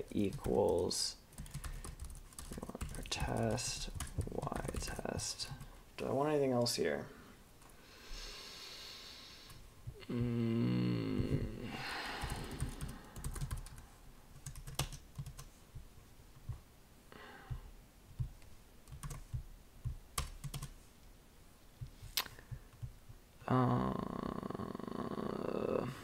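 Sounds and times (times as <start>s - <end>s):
person's voice: 0.0s - 1.2s, 2.5s - 7.2s, 23.4s - 26.0s
typing on computer keyboard: 0.0s - 5.6s, 12.2s - 13.8s, 14.4s - 15.5s, 18.9s - 19.4s, 20.2s - 20.8s.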